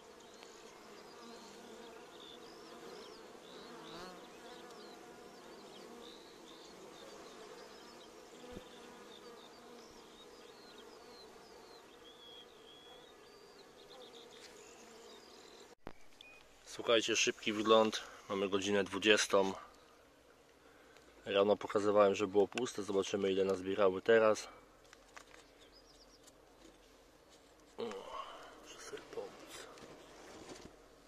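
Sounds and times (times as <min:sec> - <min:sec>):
honeybees buzzing: 0:00.0 - 0:15.8.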